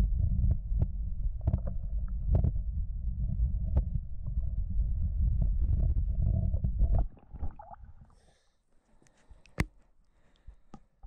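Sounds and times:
muffled underwater rumble: 0:00.0 - 0:08.2.

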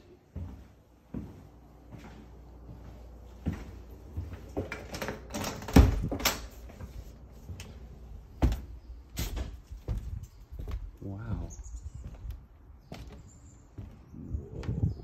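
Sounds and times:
door unlatching and opening: 0:04.6 - 0:06.6.

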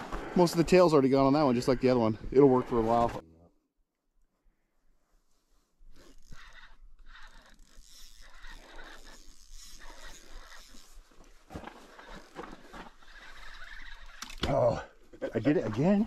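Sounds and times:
small clicks: 0:12.0 - 0:14.5.

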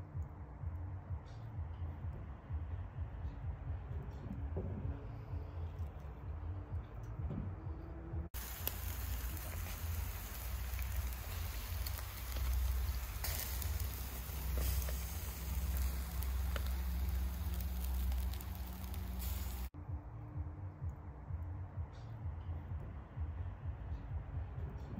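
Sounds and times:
low rumble: 0:00.0 - 0:24.8
fish sizzling on a grill: 0:08.4 - 0:19.7.

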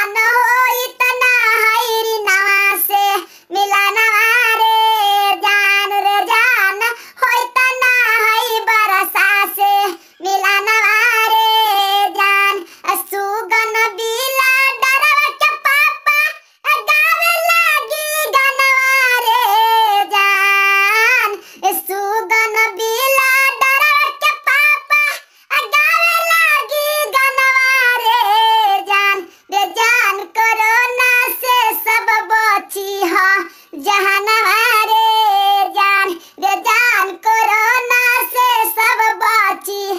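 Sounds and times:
high-pitched voice singing: 0:00.0 - 0:39.9.

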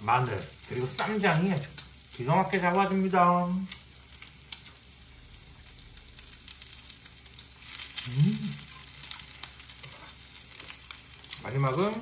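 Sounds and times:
meat sizzling on grill pan: 0:00.0 - 0:12.0
crackling pops: 0:03.6 - 0:05.0
person humming: 0:08.0 - 0:08.7.

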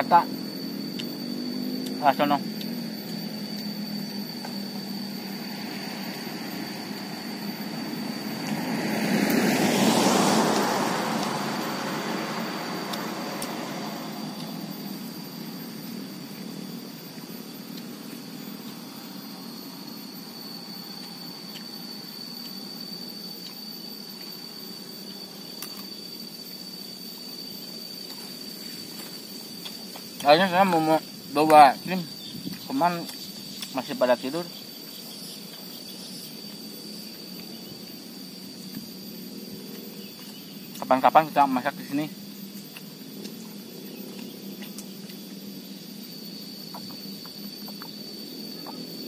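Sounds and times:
high-pitched insect drone: 0:00.0 - 0:49.0
road vehicle passing: 0:05.3 - 0:15.5.

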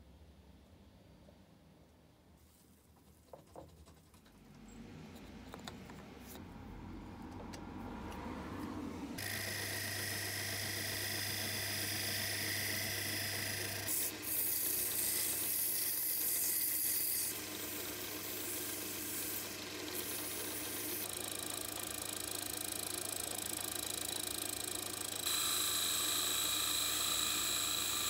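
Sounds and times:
lathe humming and whining: 0:09.2 - 0:28.0.

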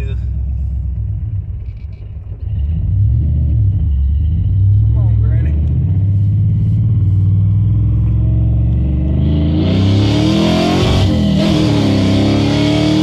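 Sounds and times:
pickup engine accelerating: 0:00.0 - 0:13.0.

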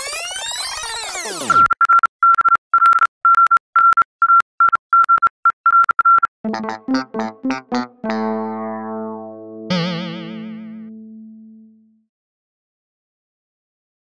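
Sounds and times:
electric piano notes: 0:06.5 - 0:11.9.

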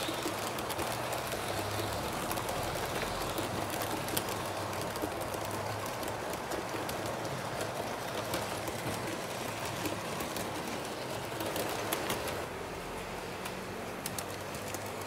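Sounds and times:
model train rattling on track: 0:00.0 - 0:15.0.

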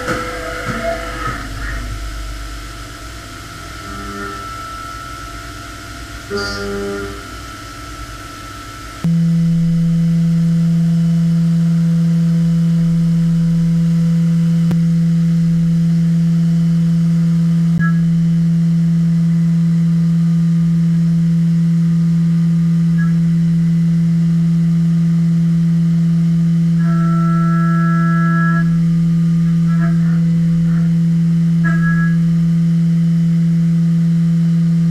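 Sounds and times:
milling machine humming: 0:00.0 - 0:16.6, 0:26.3 - 0:34.9.

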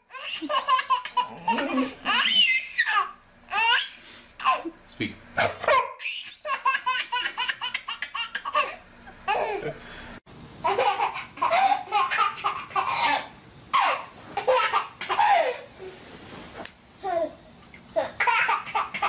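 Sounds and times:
babies laughing hard: 0:00.1 - 0:04.7, 0:06.0 - 0:09.8, 0:10.6 - 0:15.7, 0:18.2 - 0:19.0.

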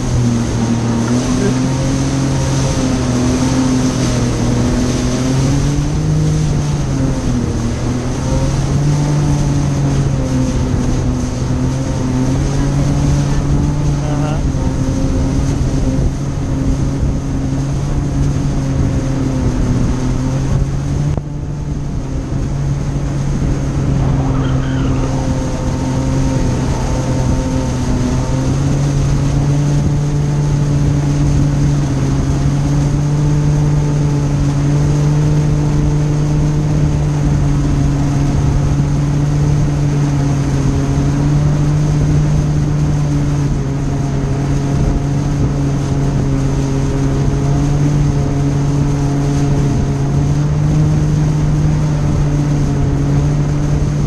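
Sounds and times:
watercraft engine drone: 0:00.0 - 0:54.0
rushing air: 0:19.4 - 0:32.8.

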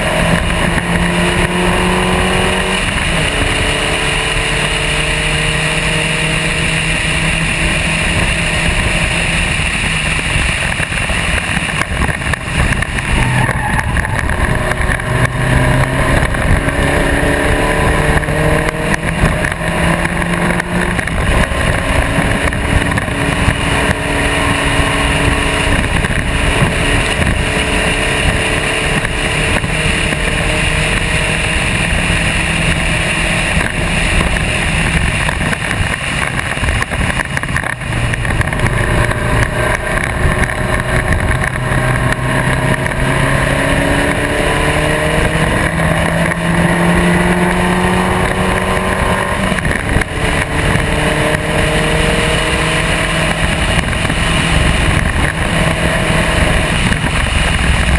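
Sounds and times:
race car engine accelerating: 0:00.0 - 0:57.9
road and wind noise: 0:00.0 - 0:57.9.

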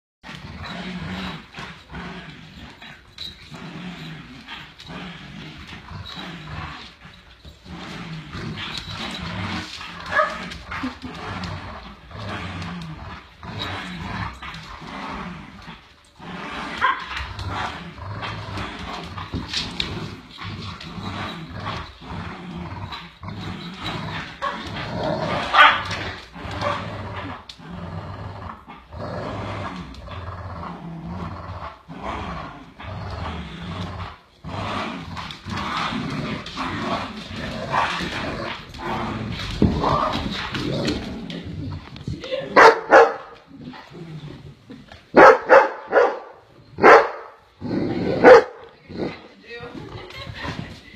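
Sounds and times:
dogs growling: 0:00.2 - 0:50.9
dog barking: 0:42.6 - 0:43.2, 0:45.2 - 0:47.3, 0:48.2 - 0:48.6.

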